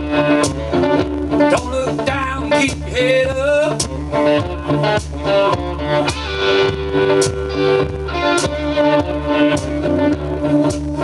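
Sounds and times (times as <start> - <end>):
acoustic guitar: 0.0 - 11.0
backing track with bass and beat: 0.0 - 11.0
person singing: 1.4 - 5.9.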